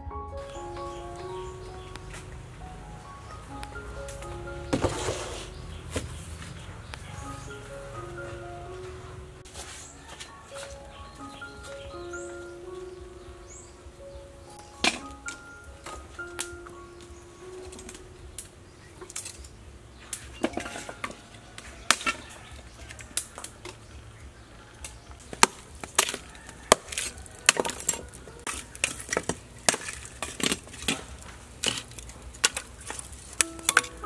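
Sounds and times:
charcoal chunks clinking: 14.6s - 24.0s, 24.8s - 34.0s.

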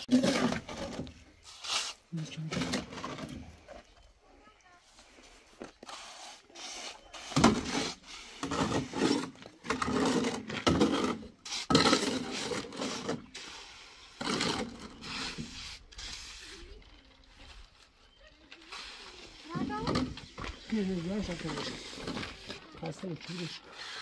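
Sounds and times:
rough rasping scrapes: 0.0s - 2.0s, 5.8s - 16.8s, 18.6s - 24.0s.

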